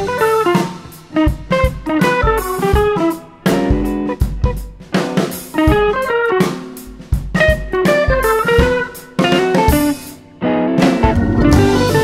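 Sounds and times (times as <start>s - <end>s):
drum kit beat: 0.0s - 12.0s
plucked guitar: 0.0s - 12.0s.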